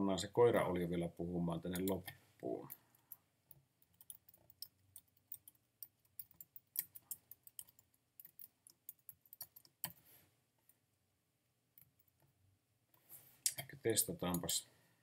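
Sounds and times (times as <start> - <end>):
computer keyboard typing: 3.8 - 10.0.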